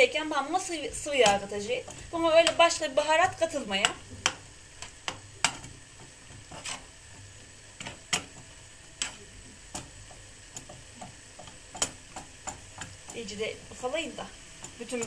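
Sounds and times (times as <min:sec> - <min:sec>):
meat sizzling: 0:00.0 - 0:15.0
spatula scraping frying pan: 0:00.4 - 0:15.0.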